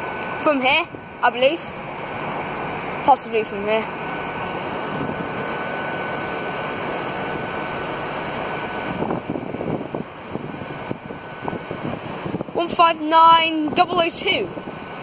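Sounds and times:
distant diesel train running: 0.0 - 15.0
faint high whine: 0.0 - 15.0
wind on microphone: 4.8 - 5.6, 8.6 - 12.9, 13.6 - 15.0.

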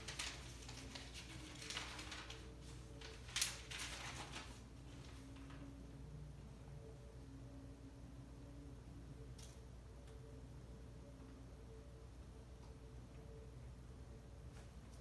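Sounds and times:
paper rustling: 0.0 - 5.7
low room hum: 0.0 - 15.0.

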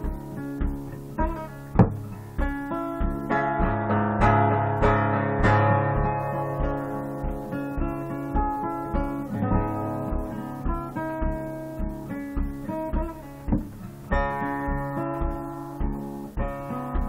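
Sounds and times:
acoustic guitar picking: 0.0 - 17.0
steady low beat: 0.0 - 17.0.

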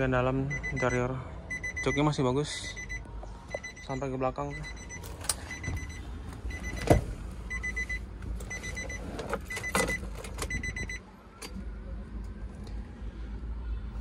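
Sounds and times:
dashboard warning chime beeping: 0.4 - 11.0.

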